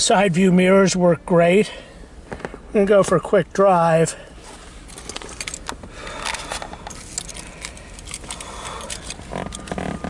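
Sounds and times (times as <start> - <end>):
small handling clicks and rattles: 4.9 - 10.0.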